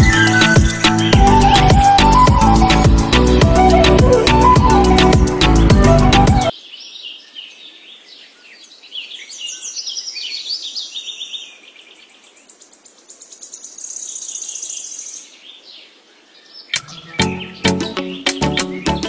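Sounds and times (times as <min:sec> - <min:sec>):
high even trill: 0:00.0 - 0:06.5
birds chirping and trilling: 0:00.0 - 0:19.0.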